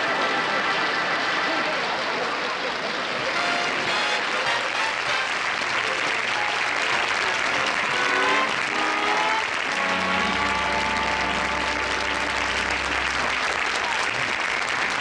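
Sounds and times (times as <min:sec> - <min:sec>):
audience applauding: 0:00.0 - 0:15.0
band playing: 0:03.3 - 0:13.9.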